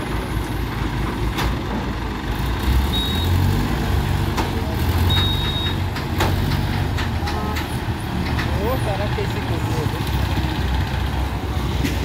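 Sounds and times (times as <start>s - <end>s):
diesel crane engines running: 0.0s - 12.0s.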